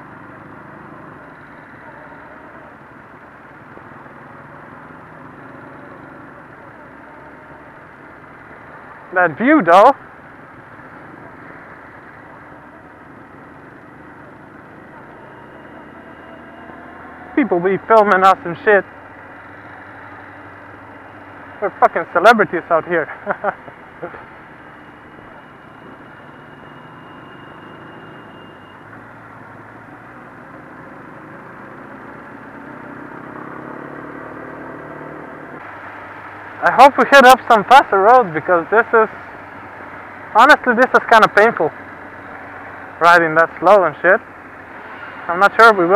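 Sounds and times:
motorcycle engines at low speed: 0.0s - 45.9s.

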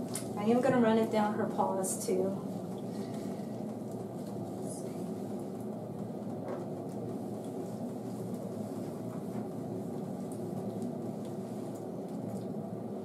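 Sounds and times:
low mechanical hum: 0.0s - 13.0s
soft squishes of wet fur: 6.9s - 12.7s.

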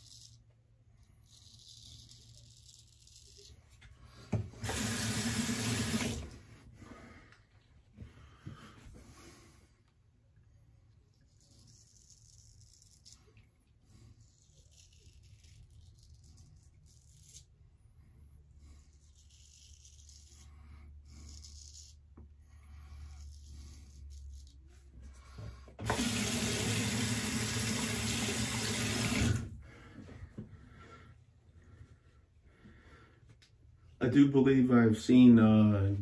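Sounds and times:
razor scraping stubble: 1.1s - 3.8s, 11.2s - 13.4s, 14.2s - 17.6s, 18.8s - 24.9s.

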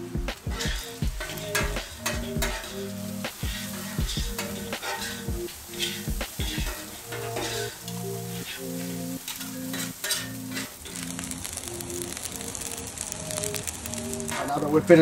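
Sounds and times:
rice sizzling on a griddle: 0.0s - 15.0s
metal spatulas scraping and clacking: 3.6s - 6.1s, 6.7s - 8.0s, 9.3s - 10.8s.

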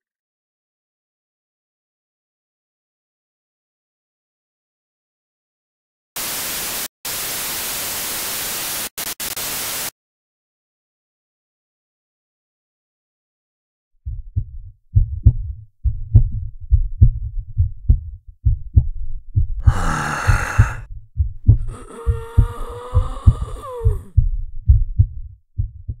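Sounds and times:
loud rasping burst: 6.2s - 9.9s
heartbeat thumps: 14.0s - 26.0s.

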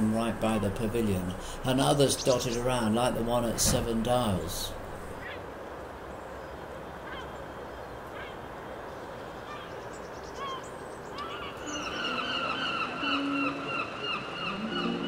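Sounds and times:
low background rumble: 0.0s - 5.4s
faint short bird calls: 7.0s - 7.4s.

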